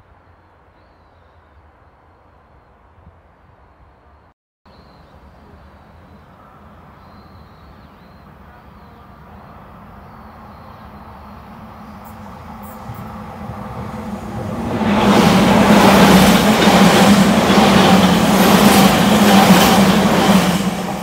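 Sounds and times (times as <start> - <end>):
train rumbling: 8.2 - 21.0.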